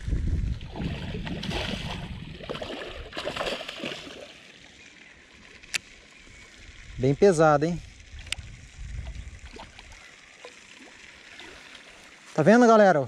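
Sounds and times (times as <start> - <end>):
water splashing and sloshing: 0.4 - 4.7, 9.3 - 12.4
fish thrashing in water: 0.6 - 4.4.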